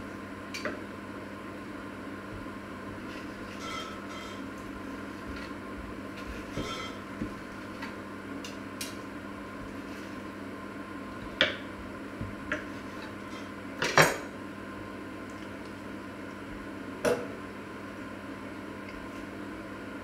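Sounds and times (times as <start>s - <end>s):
knife and fork on cutting board: 3.1s - 4.5s, 6.2s - 7.1s.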